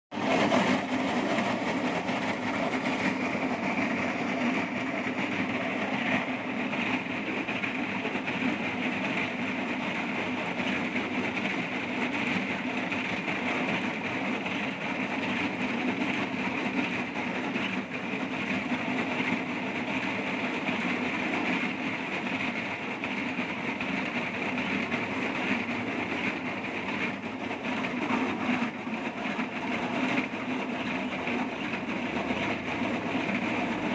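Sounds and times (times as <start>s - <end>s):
cutting wheel grinding pavement: 0.1s - 33.9s.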